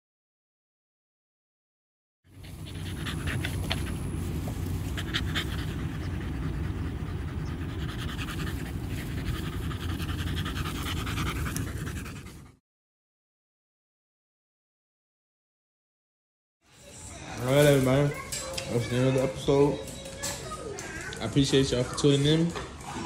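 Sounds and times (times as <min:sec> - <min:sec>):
dog panting: 0:02.3 - 0:12.6.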